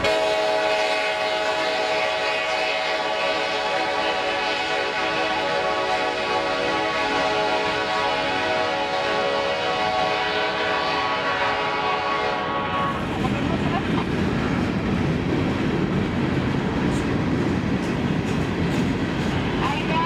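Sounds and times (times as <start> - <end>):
train air horn chord: 0.0 - 13.0
rumble of rolling freight cars: 0.0 - 20.0.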